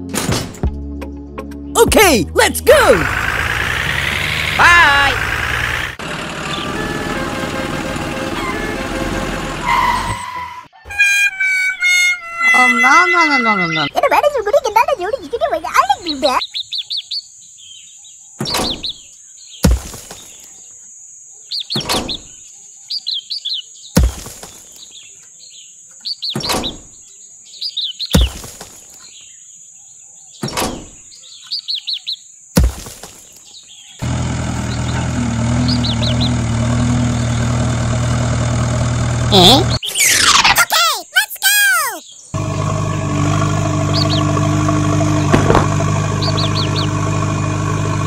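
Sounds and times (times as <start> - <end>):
birds chirping: 1.5 - 48.0
low engine idle hum: 2.4 - 9.7, 34.0 - 39.8, 42.4 - 48.0
concrete knocking on plastic: 45.3 - 45.8.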